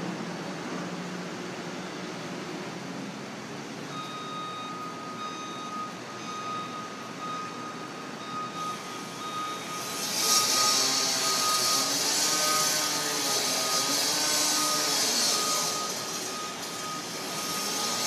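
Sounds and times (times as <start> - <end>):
reversing alarm beeping: 3.8 - 18.0
machinery noise: 3.9 - 18.0.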